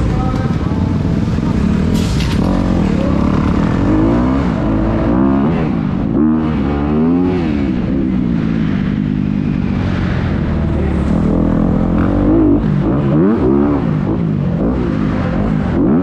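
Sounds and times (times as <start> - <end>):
dirt bike engine revving: 1.0 - 7.9, 10.9 - 16.0.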